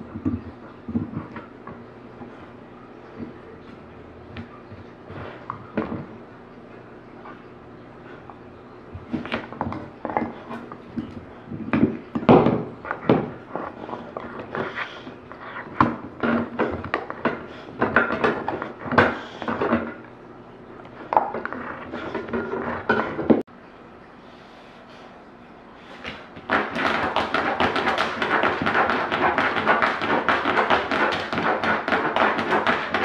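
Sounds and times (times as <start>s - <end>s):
dog gnawing and scraping plastic: 9.0s - 20.0s, 21.0s - 23.4s, 26.4s - 33.0s.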